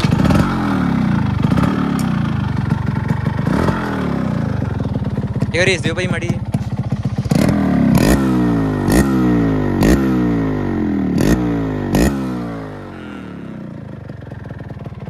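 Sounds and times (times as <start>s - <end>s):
sharp exhaust pops: 0.0s - 0.8s
motorcycle engine revving: 0.0s - 15.0s.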